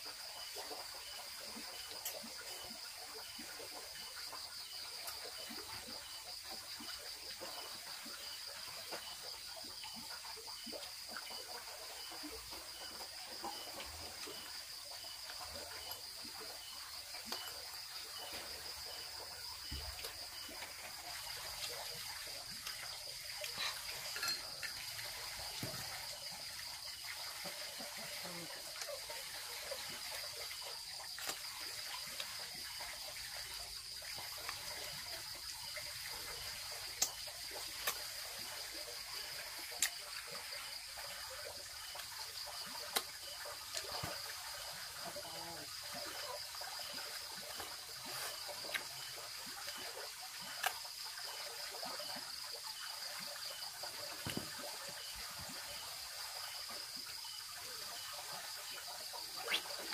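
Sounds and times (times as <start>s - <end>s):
water trickling and splashing: 0.0s - 59.9s
kitchenware clinking: 23.6s - 24.7s.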